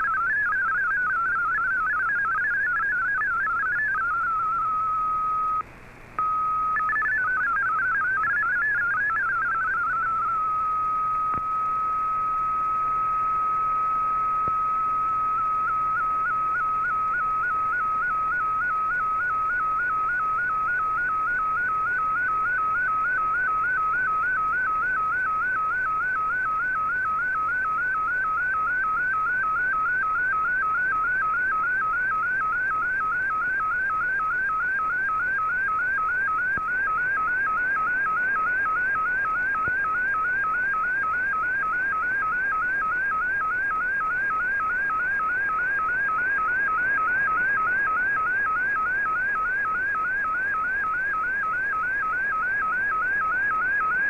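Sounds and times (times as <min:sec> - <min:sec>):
warbling radio picture signal tone: 0:00.0 - 0:05.6, 0:06.2 - 0:54.0
radio hiss: 0:28.1 - 0:54.0.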